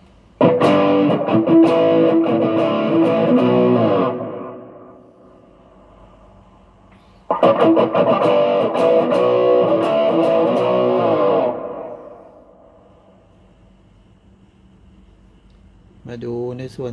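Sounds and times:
distorted electric guitar riff: 0.4s - 5.1s, 7.3s - 12.6s.

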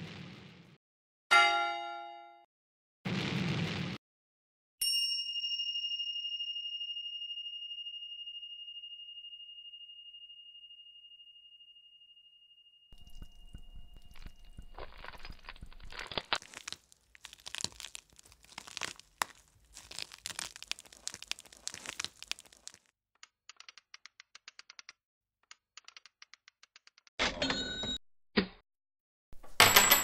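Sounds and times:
dry grainy material crunching: 13.0s - 22.9s.

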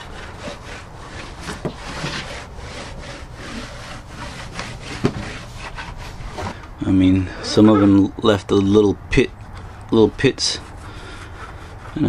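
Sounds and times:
cloth rag rubbing on panel: 0.0s - 6.6s, 10.0s - 12.0s.

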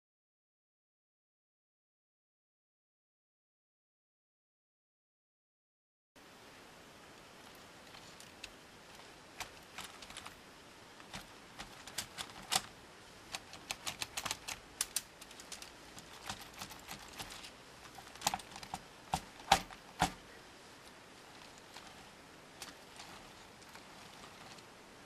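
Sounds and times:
plastic parts clicking and knocking: 7.9s - 10.4s, 11.0s - 12.7s, 13.3s - 20.2s, 21.4s - 24.6s
wheels bumping a shelf: 13.4s - 20.2s, 21.4s - 24.7s.

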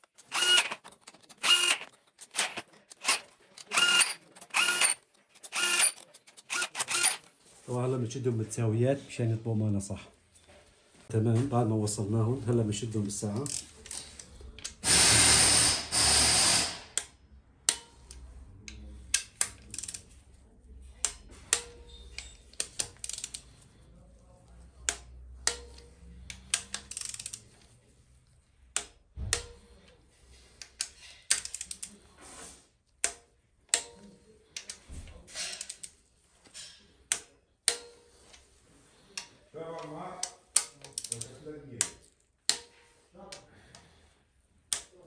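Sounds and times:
hand ratchet clicking: 0.2s - 7.2s, 13.4s - 14.0s, 14.6s - 20.0s, 21.0s - 23.5s, 24.9s - 27.5s, 30.6s - 31.9s, 40.2s - 42.7s.

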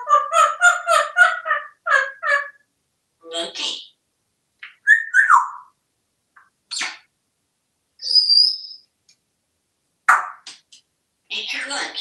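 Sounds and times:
parrot calling and whistling: 0.0s - 2.6s, 4.6s - 5.8s, 8.0s - 8.8s.

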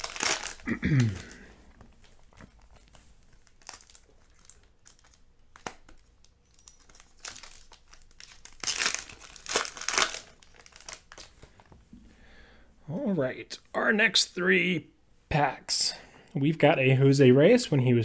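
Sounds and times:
foil wrapper crinkling and tearing: 0.0s - 1.4s, 2.1s - 11.4s.

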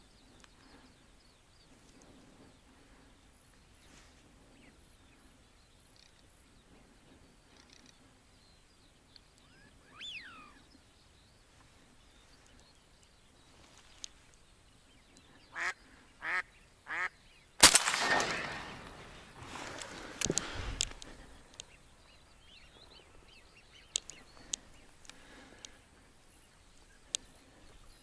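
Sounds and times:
faint bird call: 9.4s - 10.8s
duck quacking: 15.5s - 17.2s
shotgun shot with echo: 17.6s - 19.2s
commotion: 17.6s - 21.4s.

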